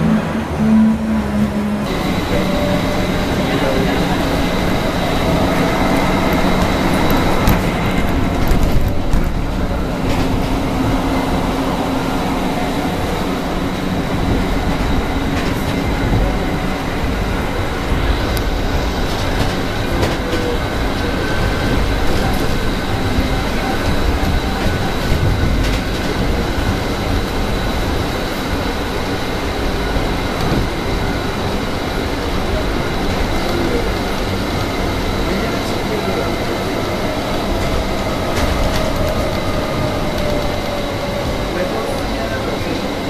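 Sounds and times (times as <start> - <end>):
train rolling rumble: 0.0 - 43.0.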